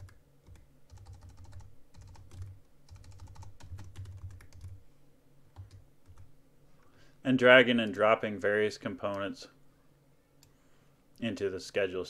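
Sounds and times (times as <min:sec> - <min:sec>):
typing on computer keyboard: 0:00.0 - 0:04.8, 0:05.6 - 0:06.3.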